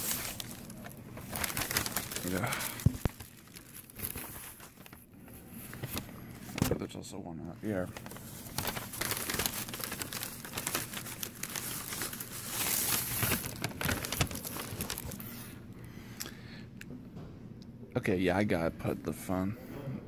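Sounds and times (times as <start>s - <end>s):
paper crinkling and rustling: 0.0s - 6.9s, 7.5s - 15.5s.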